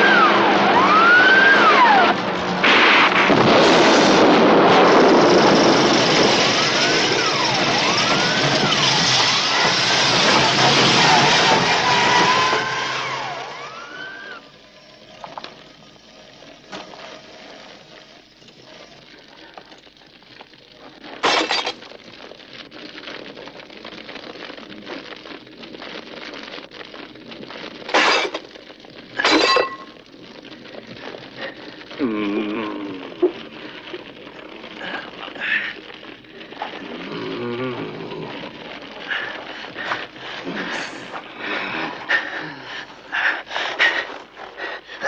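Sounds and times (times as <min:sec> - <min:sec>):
glass breaking crashes: 0:02.4 - 0:13.7, 0:21.2 - 0:21.9, 0:27.9 - 0:28.5, 0:29.2 - 0:30.0.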